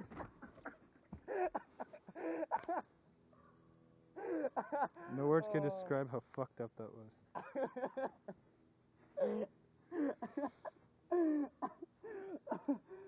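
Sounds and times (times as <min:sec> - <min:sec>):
man groaning in pain: 0:09.2 - 0:10.4, 0:11.1 - 0:12.8.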